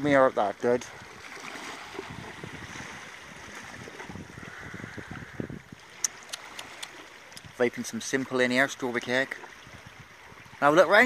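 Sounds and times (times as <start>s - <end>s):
wind buffeting microphone: 1.0s - 7.6s, 9.5s - 11.0s
small sharp clicks: 6.0s - 7.5s.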